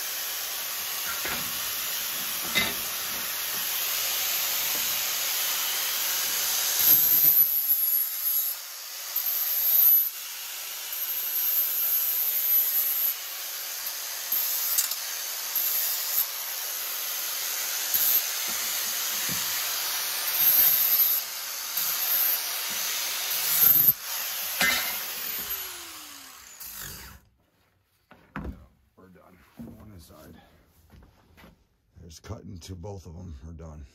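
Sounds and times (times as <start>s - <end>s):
power tool hiss and whine: 0.0s - 27.2s
tool rasping on material: 0.8s - 27.2s.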